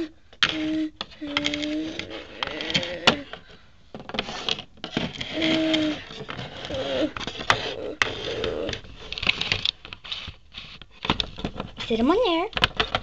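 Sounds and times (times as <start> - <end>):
toy pieces clicking on wooden floor: 0.0 - 3.3
plastic toy pieces rustling: 0.0 - 13.0.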